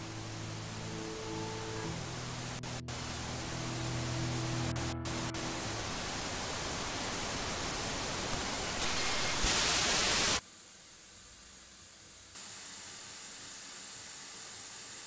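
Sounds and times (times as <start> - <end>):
low droning chord: 0.0 - 7.9
television static hiss: 0.0 - 15.0.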